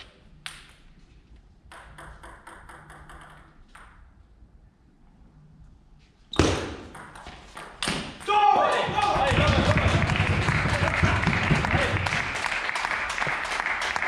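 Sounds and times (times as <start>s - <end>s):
table tennis ball bouncing: 0.4s - 0.9s, 1.6s - 4.2s, 6.4s - 12.0s.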